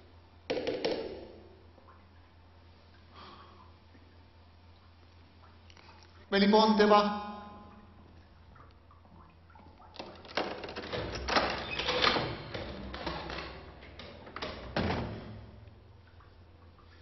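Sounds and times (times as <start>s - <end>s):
metal door hatch and lock clattering: 10.0s - 15.5s
heavy door unlatching clunk: 10.0s - 15.6s.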